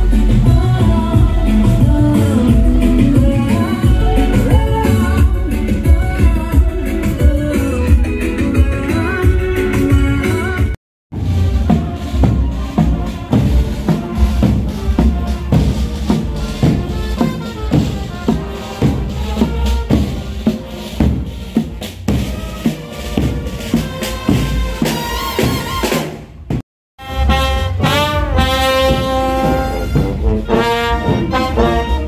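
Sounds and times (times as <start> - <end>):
brass band playing: 0.0 - 32.0
marching drums playing: 0.0 - 32.0.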